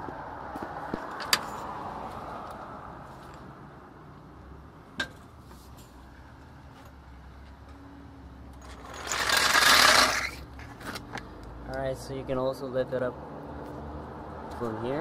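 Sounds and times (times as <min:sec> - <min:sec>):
rushing scraping noise: 0:08.8 - 0:10.4.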